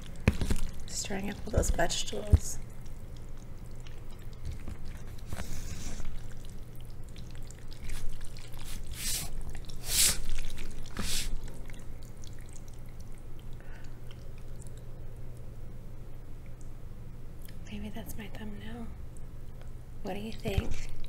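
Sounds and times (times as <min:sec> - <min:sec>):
noodles stirred wet squishing: 0:00.0 - 0:14.9.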